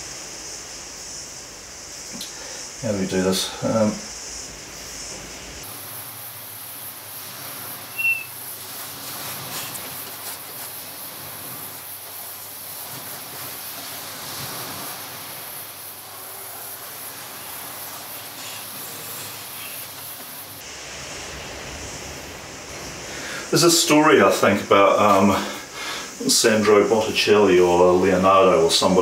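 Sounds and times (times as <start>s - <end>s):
steady hiss: 0.0s - 29.0s
brief high squeak: 7.9s - 8.3s.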